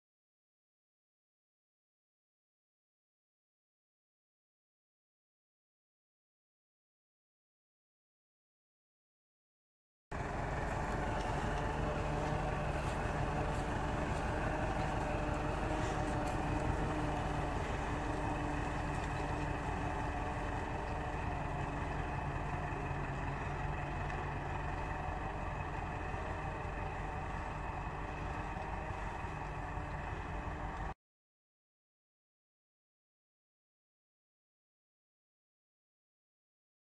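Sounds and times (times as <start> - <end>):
tractor diesel engine under load: 10.1 - 31.0.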